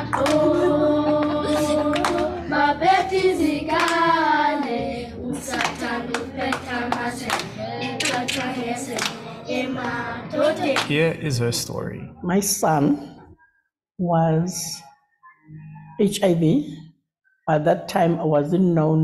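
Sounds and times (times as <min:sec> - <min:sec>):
children singing: 0:00.0 - 0:11.2
rhythmic clapping: 0:00.0 - 0:11.2.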